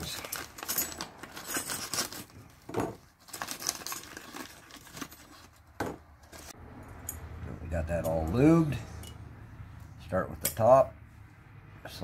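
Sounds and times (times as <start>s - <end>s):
plastic bag crinkling and tearing: 0.0s - 5.6s.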